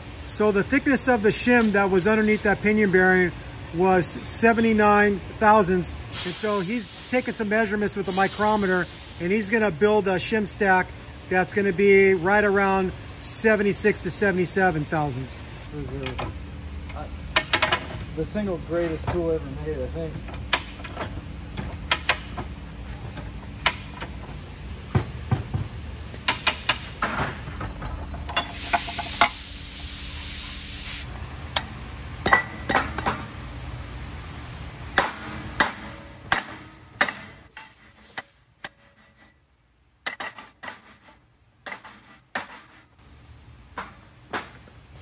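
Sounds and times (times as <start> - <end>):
low background hum: 0.0 - 45.0
hiss: 6.1 - 9.5, 28.4 - 31.1
metal parts clinking: 27.0 - 29.4.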